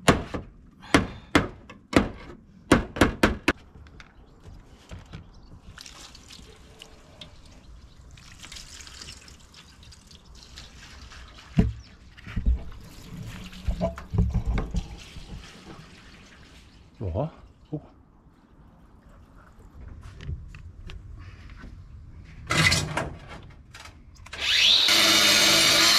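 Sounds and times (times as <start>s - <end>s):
water splashing over roof tiles: 5.6s - 17.1s
water trickling: 5.6s - 17.6s.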